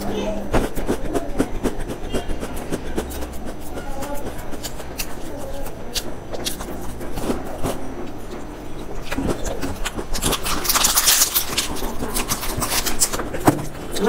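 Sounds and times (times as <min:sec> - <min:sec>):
biscuit chewing crunches: 0:00.7 - 0:14.0
snack wrapper crinkling: 0:04.4 - 0:14.0.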